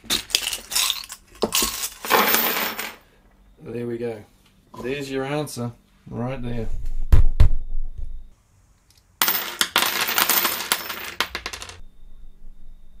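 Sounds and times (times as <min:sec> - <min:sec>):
small steel parts spilling onto bench: 0:00.1 - 0:03.0.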